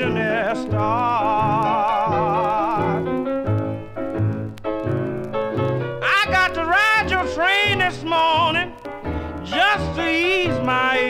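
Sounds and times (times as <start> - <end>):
man singing blues: 0.0 - 3.3, 5.9 - 11.0
piano chords: 0.0 - 11.0.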